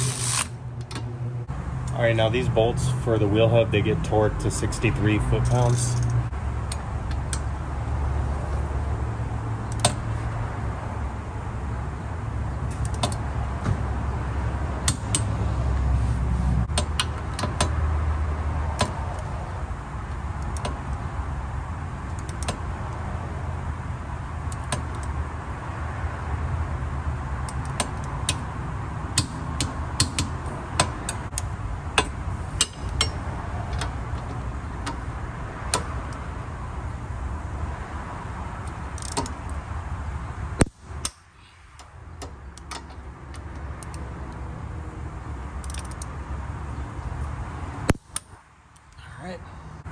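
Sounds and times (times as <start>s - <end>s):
socket wrench clicking: 12.7s - 13.2s, 38.6s - 39.6s, 41.8s - 44.4s, 45.6s - 46.1s.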